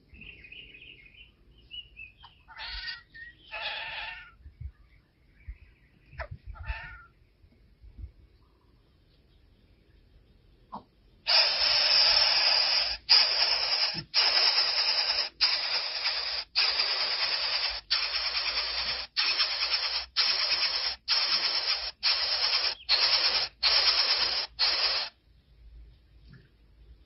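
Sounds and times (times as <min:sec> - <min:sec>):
nestlings hissing: 0:11.3 - 0:25.2.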